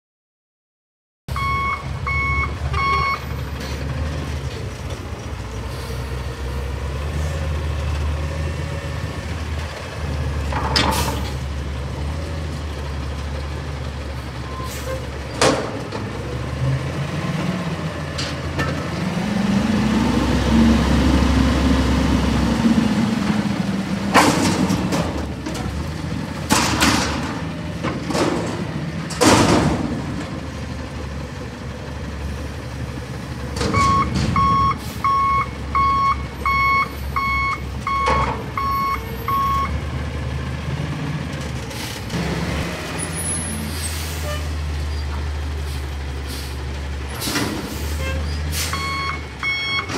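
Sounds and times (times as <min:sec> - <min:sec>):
backup alarm beeping: 0:01.3 - 0:03.3, 0:33.7 - 0:39.7, 0:48.7 - 0:49.9
garbage truck engine revving: 0:01.4 - 0:49.9
dumpster banging: 0:14.7 - 0:19.2, 0:22.8 - 0:30.9, 0:33.4 - 0:35.0.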